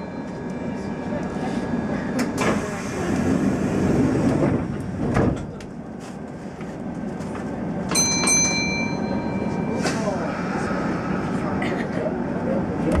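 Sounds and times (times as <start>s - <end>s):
signal bell ringing: 0.0s - 1.2s, 7.9s - 9.8s
train doors closing with a thud: 2.0s - 5.8s, 9.7s - 10.6s.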